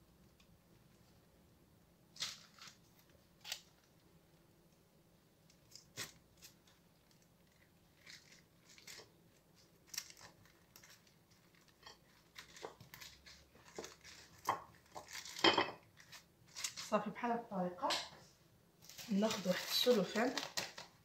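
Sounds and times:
baking paper crinkling: 2.1 - 4.5, 5.5 - 17.2, 18.8 - 21.0.

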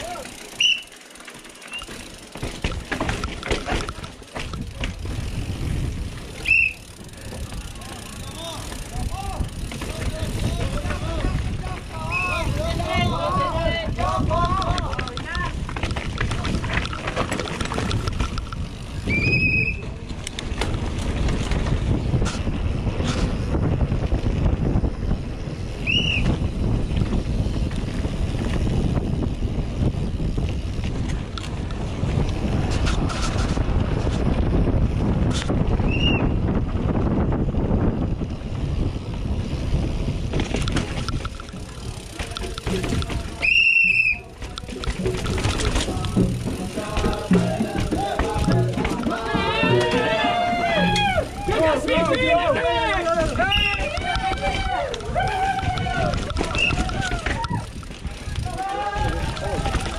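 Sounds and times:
tyres rolling over concrete: 0.0 - 23.6, 38.2 - 59.9
bike rattling over bumps: 0.0 - 59.9
wind buffeting microphone: 2.1 - 59.9.

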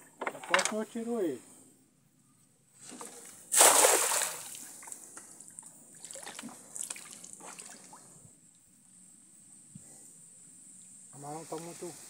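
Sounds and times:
net splashing into water: 2.9 - 5.0, 6.0 - 8.0.

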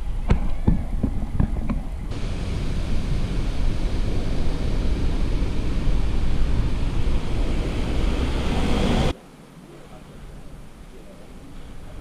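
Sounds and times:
tyre and road noise: 0.0 - 9.2
wind rushing over microphone: 0.0 - 9.2.

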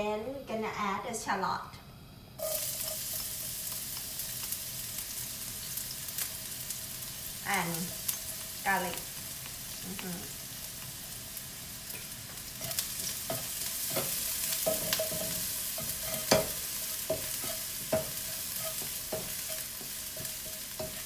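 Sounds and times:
shallots and garlic sizzling in oil: 2.4 - 21.0
spatula scraping and knocking pan: 11.9 - 21.0.

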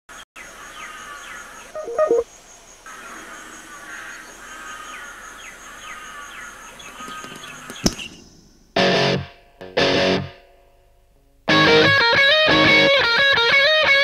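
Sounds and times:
faint high-pitched tone: 1.8 - 2.2
harsh bird cawing: 2.9 - 8.3.

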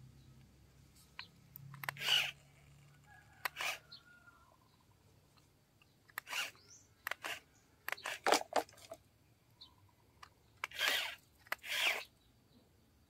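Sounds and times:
toy scraping on gravel: 1.0 - 4.0, 6.1 - 9.0, 10.6 - 12.1
plastic toy clicking: 1.5 - 2.8, 3.4 - 3.8, 6.1 - 9.0, 10.2 - 12.1.

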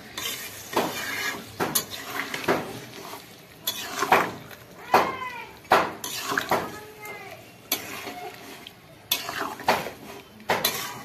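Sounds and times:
utensil scraping and knocking pan: 0.0 - 3.0, 3.7 - 4.4, 5.0 - 6.8, 9.1 - 11.0.

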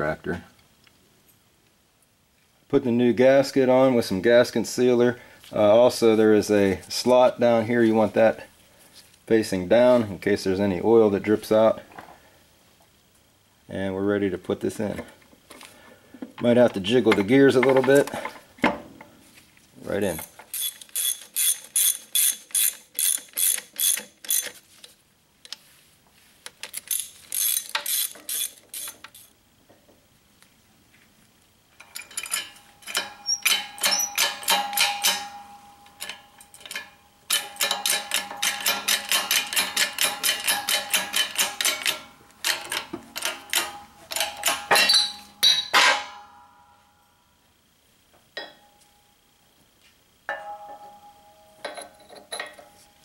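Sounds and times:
ratchet wrench clicking: 20.2 - 24.6, 26.6 - 29.3, 36.0 - 45.6.

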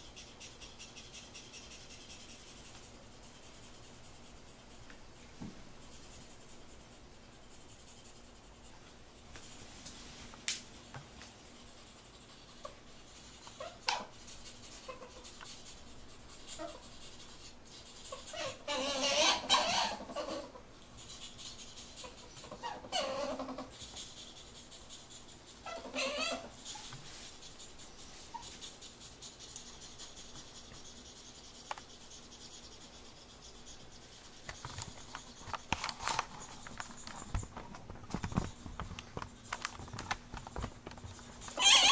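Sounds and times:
ferrets pulsing calls: 0.0 - 4.8, 11.9 - 37.4, 41.4 - 41.9.

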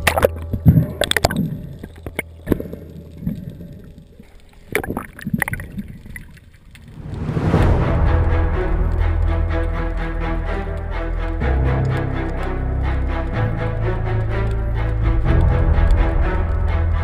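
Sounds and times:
underwater knocks and clicks: 0.0 - 7.0
low watery rumble: 0.0 - 17.0
rushing noise: 6.8 - 11.6.

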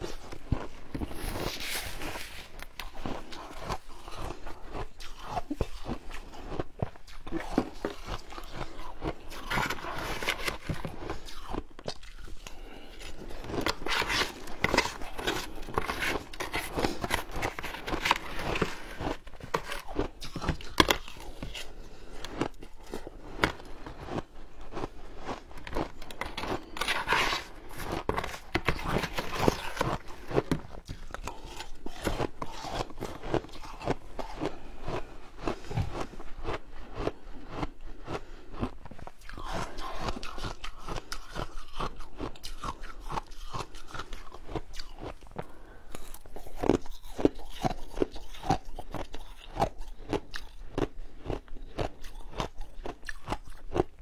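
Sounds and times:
ice crunching while chewed: 0.0 - 54.0
metal spoon scraping ice: 13.7 - 21.2, 26.0 - 30.1.

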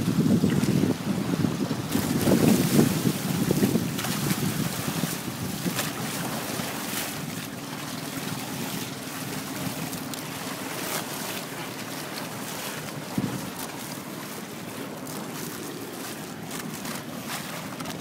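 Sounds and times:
wind buffeting microphone: 0.0 - 6.6, 13.0 - 13.7
water rushing along hull: 0.0 - 18.0
water splashes: 0.0 - 18.0.

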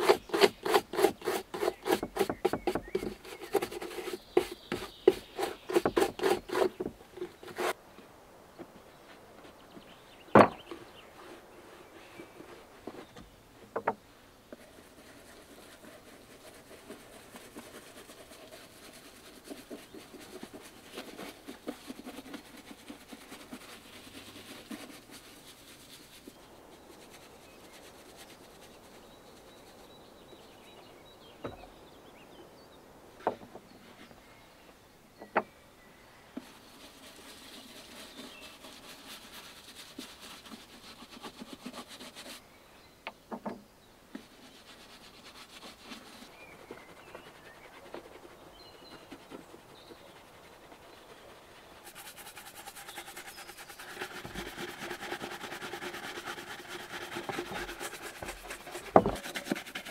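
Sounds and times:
rubbing strokes on leather: 0.0 - 7.8, 14.5 - 30.0, 36.4 - 42.4, 44.1 - 59.9
sharp knocks: 10.3 - 10.7.

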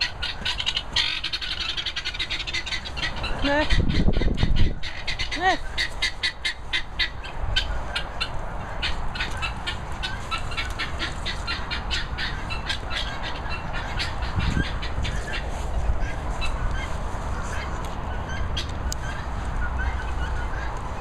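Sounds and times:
birds squawking: 0.0 - 21.0.

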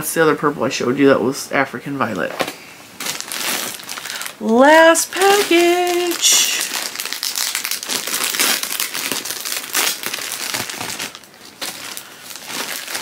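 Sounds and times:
plastic bag crinkling: 2.9 - 13.0.

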